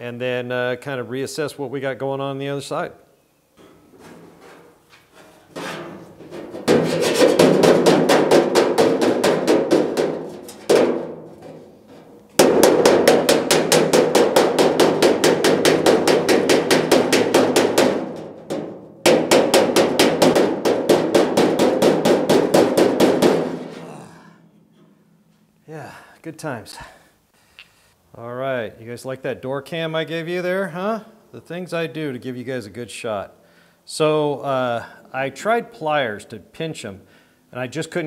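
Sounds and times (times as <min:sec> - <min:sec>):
rapid hammering on sheet metal: 0:05.6 - 0:11.7, 0:12.4 - 0:24.4.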